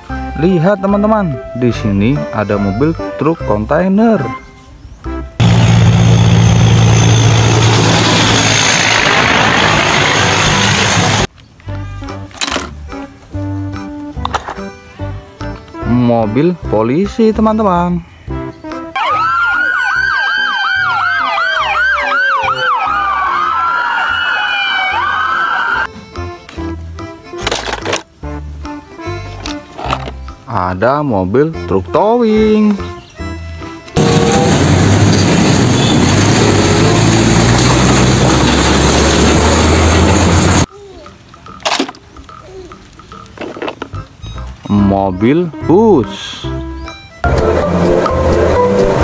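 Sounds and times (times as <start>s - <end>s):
truck driving by: 5.4s - 11.3s, 34.0s - 40.7s, 47.2s - 49.0s
police sirens yelping and wailing: 19.0s - 25.9s.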